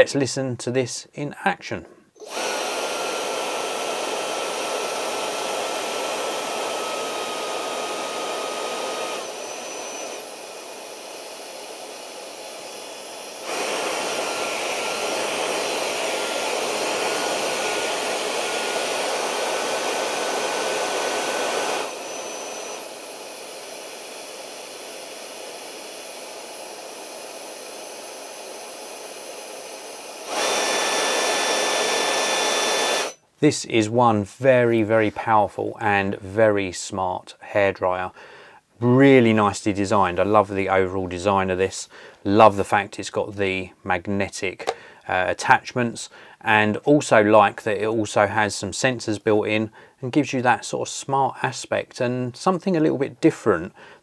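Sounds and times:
hairdryer running: 0:02.2 - 0:33.2.

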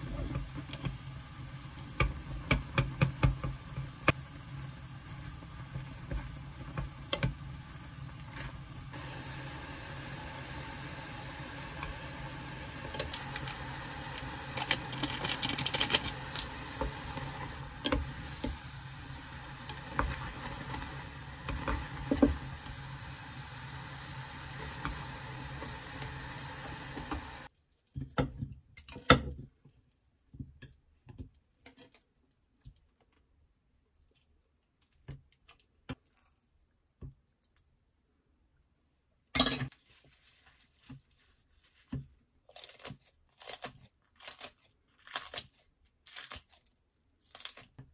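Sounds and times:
chopsticks clicking and scraping pot: 0:00.0 - 0:01.1, 0:01.7 - 0:04.3, 0:05.2 - 0:07.5, 0:12.8 - 0:22.8, 0:24.5 - 0:27.5, 0:28.1 - 0:29.4
boiling water hissing: 0:00.0 - 0:27.5.

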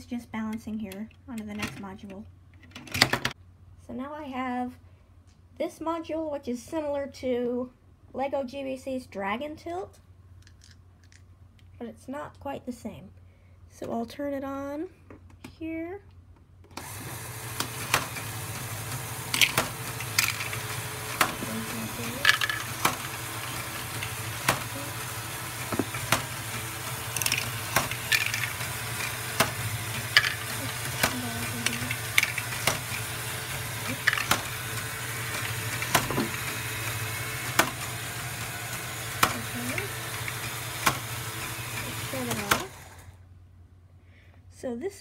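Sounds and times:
toy motors and gears humming: 0:16.7 - 0:43.3
plastic clicks and clacks: 0:19.3 - 0:24.7, 0:27.1 - 0:33.0, 0:33.9 - 0:34.5.

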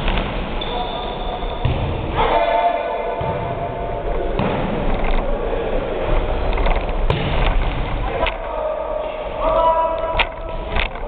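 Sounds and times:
volleyball being played: 0:00.0 - 0:08.5.

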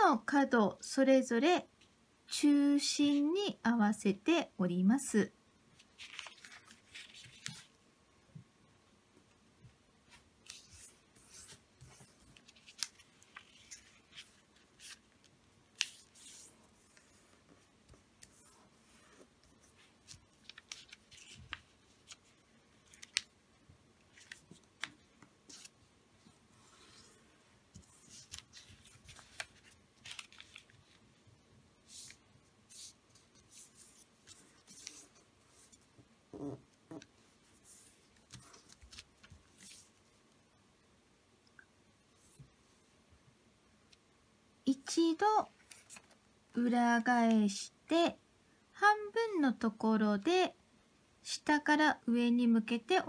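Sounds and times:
paper crinkling while folded: 0:05.8 - 0:07.7, 0:10.1 - 0:23.4, 0:24.0 - 0:25.8, 0:26.6 - 0:31.2, 0:31.8 - 0:35.9, 0:37.2 - 0:40.1, 0:45.5 - 0:46.2
sharp paper crackles: 0:28.0 - 0:31.0.

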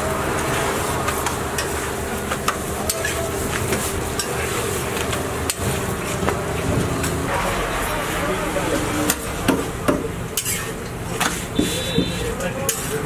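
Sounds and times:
metal spatula scraping griddle: 0:02.9 - 0:05.8, 0:10.4 - 0:13.0.

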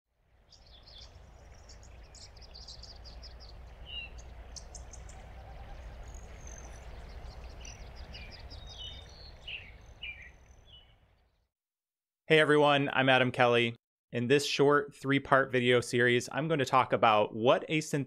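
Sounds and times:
small birds chirping: 0:00.3 - 0:11.5
steady low rumble: 0:00.4 - 0:09.4.

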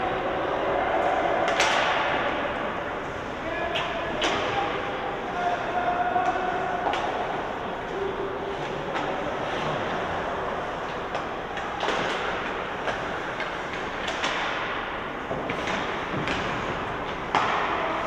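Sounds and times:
hockey sticks and puck clacking: 0:01.1 - 0:02.6, 0:03.6 - 0:18.0.

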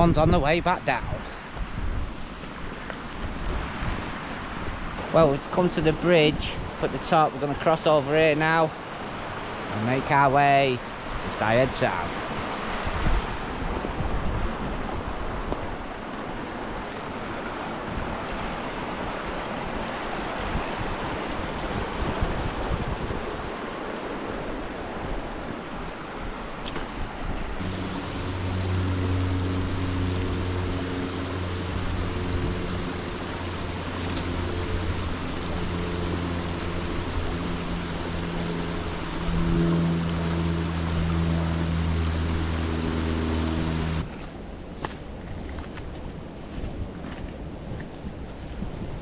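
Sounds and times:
stream rushing over rocks: 0:00.0 - 0:49.0
music with long low notes: 0:27.6 - 0:44.0.

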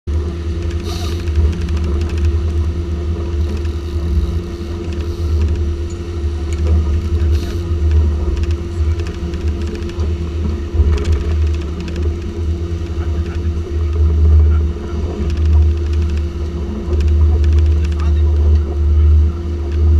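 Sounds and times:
outboard motors whining: 0:00.0 - 0:19.9.

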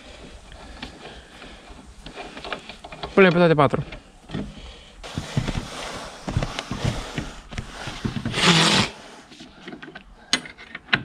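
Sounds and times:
loud noisy burst: 0:07.8 - 0:09.2.

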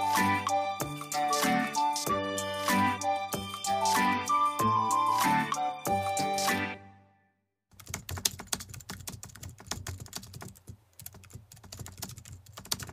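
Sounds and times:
music cue: 0:00.0 - 0:07.2
computer keyboard typing: 0:07.7 - 0:12.9.

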